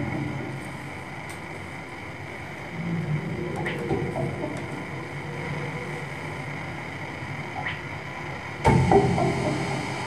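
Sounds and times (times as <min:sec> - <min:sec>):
electronic low drone: 0:00.0 - 0:10.0
loud hit with ringing tones: 0:08.6 - 0:10.0.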